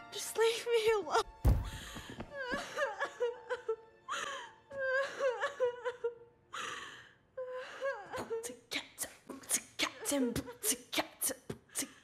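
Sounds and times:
girl sobbing: 1.9 - 6.8, 7.4 - 8.6.

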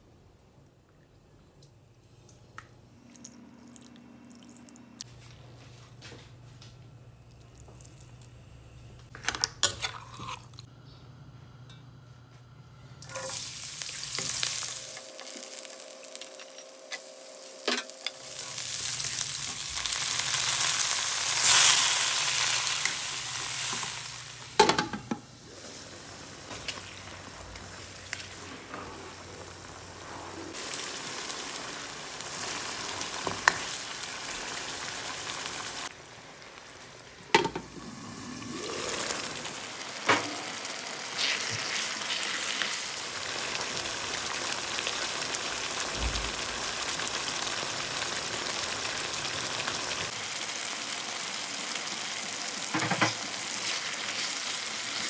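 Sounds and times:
garlic sizzling in hot oil: 13.0 - 24.7, 25.4 - 55.0
chicken frying and stirred: 13.1 - 37.7, 39.0 - 55.0.

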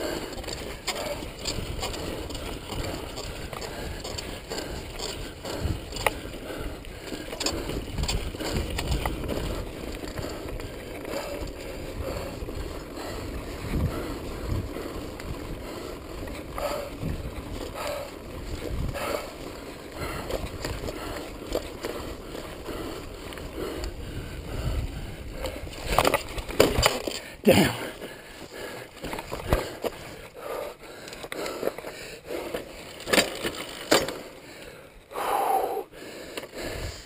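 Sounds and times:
wind buffeting microphone: 0.0 - 26.9
bike rattling and knocking: 0.0 - 34.6
tyres on dirt trail: 0.0 - 37.0.

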